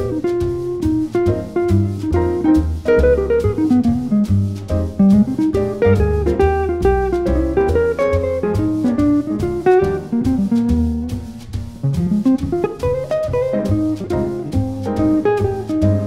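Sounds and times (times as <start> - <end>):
double bass: 0.0 - 16.0
drums: 0.0 - 16.0
jazz guitar melody: 0.0 - 16.0.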